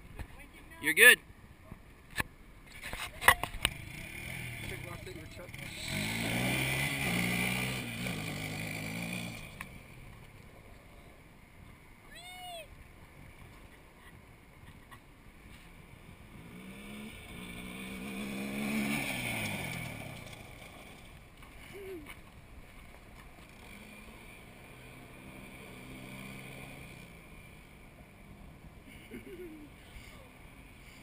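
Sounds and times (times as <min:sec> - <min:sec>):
distant engine: 0:03.2 - 0:11.3, 0:15.5 - 0:31.0
quad engine revving past: 0:03.7 - 0:10.0, 0:16.2 - 0:21.9, 0:23.5 - 0:29.3.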